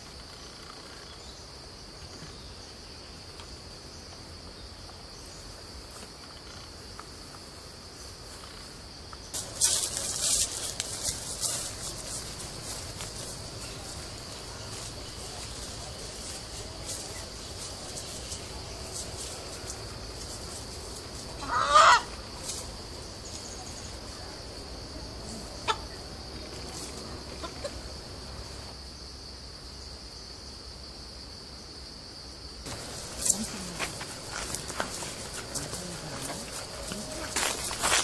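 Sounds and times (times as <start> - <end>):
rooster squawk: 21.4 - 22.1.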